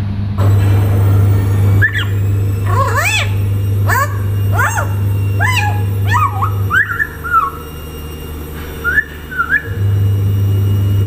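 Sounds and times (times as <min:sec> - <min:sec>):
steady low hum: 0:00.0 - 0:11.0
parrot whistling calls: 0:00.4 - 0:09.8.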